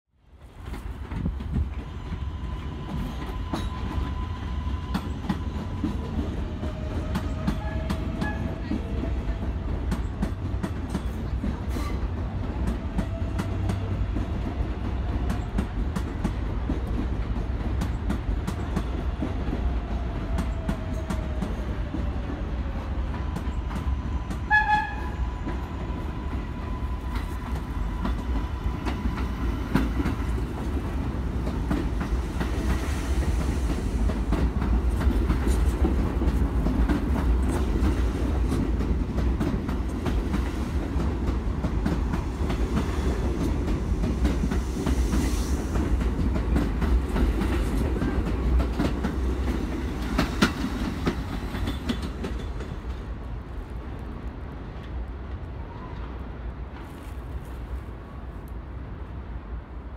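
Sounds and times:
subway train rumble: 0.1s - 59.9s
train passing close by: 0.1s - 59.9s
train horn blast: 6.9s - 8.6s, 24.4s - 25.8s.

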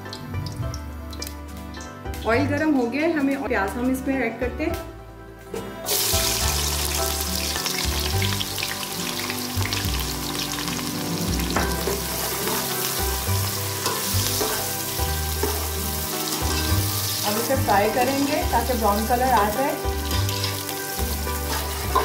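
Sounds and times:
onions sizzling in hot oil: 5.9s - 22.0s.

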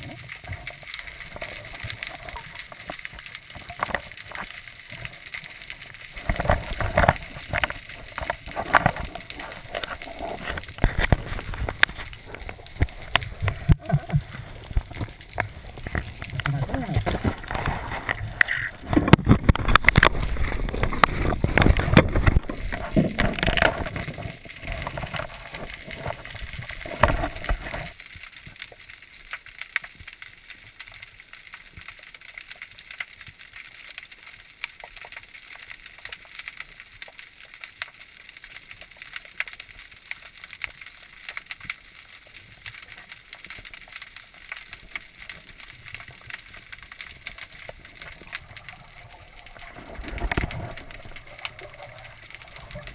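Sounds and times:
water splashing and rushing: 0.0s - 31.4s, 38.0s - 52.9s
faint clicks and crackles: 0.0s - 52.9s
underwater hush: 6.1s - 27.9s.

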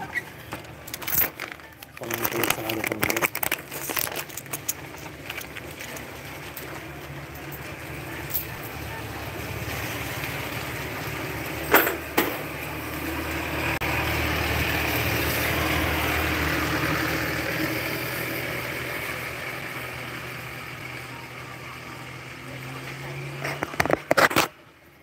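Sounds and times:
van driving past on wet road: 12.4s - 21.0s.

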